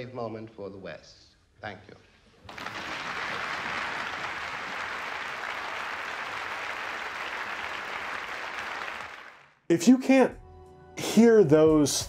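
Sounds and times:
large audience applauding: 2.4 - 9.6.

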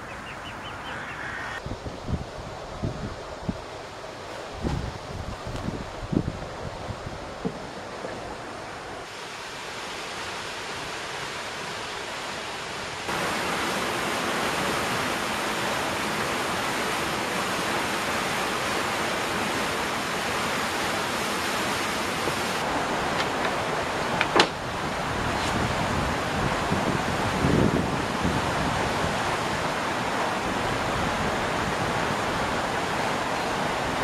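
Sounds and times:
water rushing through weir: 4.0 - 34.0.

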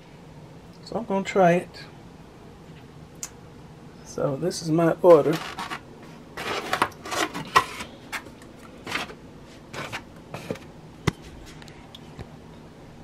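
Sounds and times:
foam lids scraping: 5.1 - 10.7.

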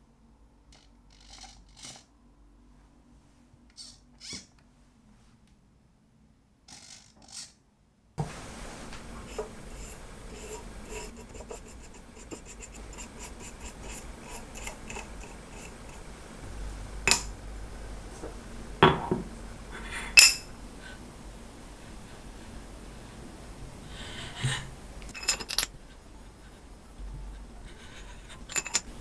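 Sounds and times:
scriber scratching metal: 0.8 - 2.1, 9.2 - 16.2, 25.0 - 25.8, 27.6 - 29.0
metal blocks clinking on stone: 20.2 - 20.5, 25.1 - 25.7, 28.5 - 28.9.

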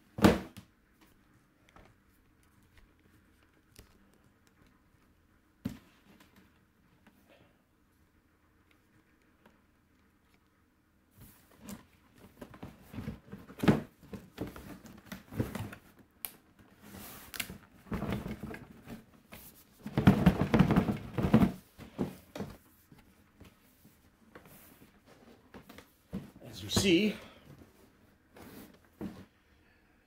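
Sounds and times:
packaging rustling and knocks: 19.8 - 22.6.

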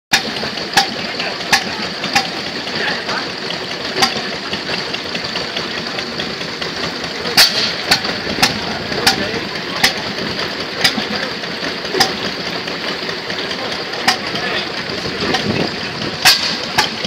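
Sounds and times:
engine mechanical clatter: 0.1 - 17.0
engine firing bangs: 6.2 - 17.0.

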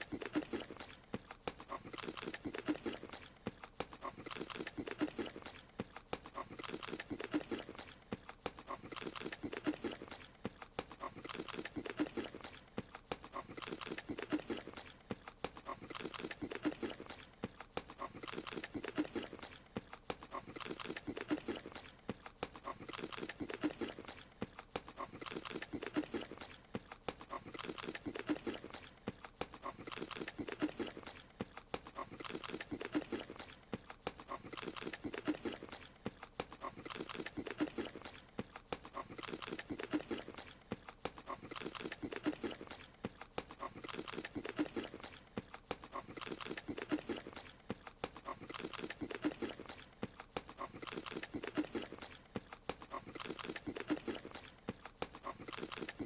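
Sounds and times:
wet munching and chomping: 0.0 - 56.0.

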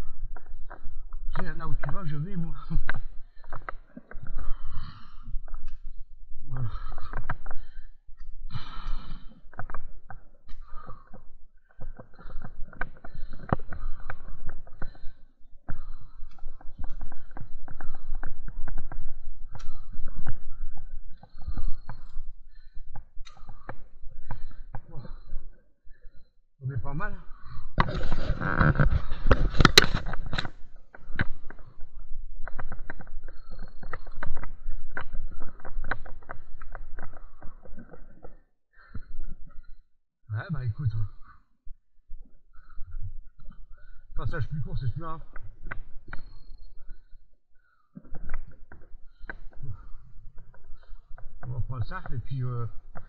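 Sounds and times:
person breathing: 2.7 - 26.4, 27.1 - 39.9, 40.9 - 53.0
stems snapping and crackling: 27.8 - 31.7.

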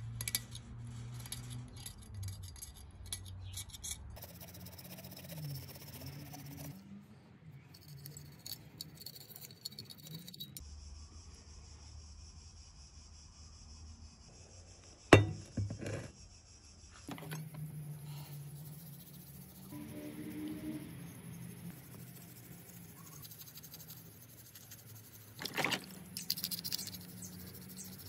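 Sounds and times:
toothbrush scrubbing metal: 4.2 - 6.8, 7.7 - 10.6, 17.3 - 28.0
metal tank clinking: 15.2 - 15.9.

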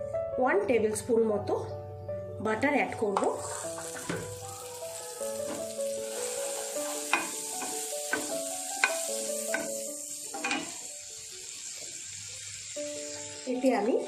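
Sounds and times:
butter sizzling in frying pan: 3.3 - 14.0.

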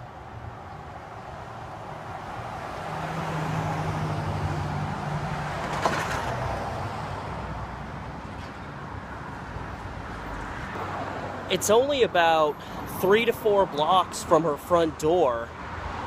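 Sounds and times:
vehicle passing: 0.2 - 14.5.

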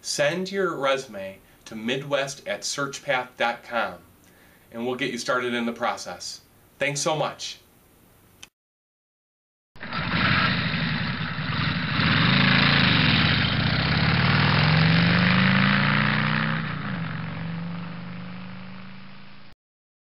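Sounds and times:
engine revving: 9.8 - 19.5.

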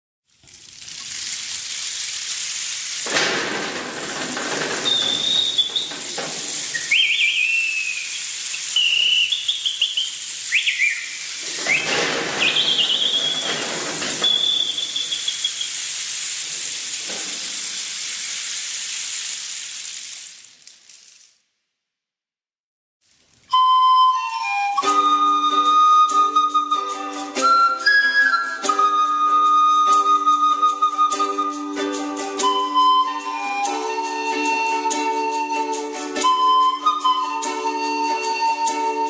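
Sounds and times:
steady loud hiss: 2.6 - 19.8
short high whistled chirps: 4.9 - 16.0, 32.4 - 39.0.

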